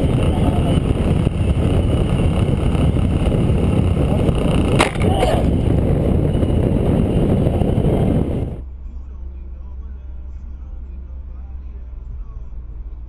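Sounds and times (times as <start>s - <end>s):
motorcycle wind and road noise: 0.0s - 8.6s.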